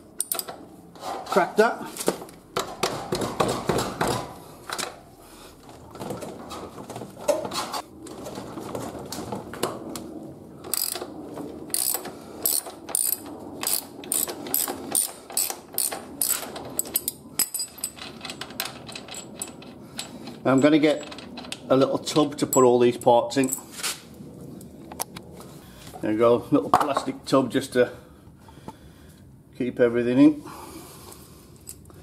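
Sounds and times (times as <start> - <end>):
ratchet wrench clicking: 10.7 - 11.0, 11.7 - 16.4.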